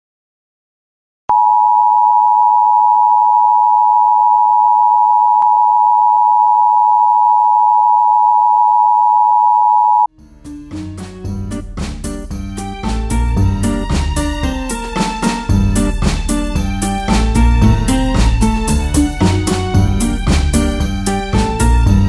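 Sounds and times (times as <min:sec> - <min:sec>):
music: 0:10.1 - 0:22.0.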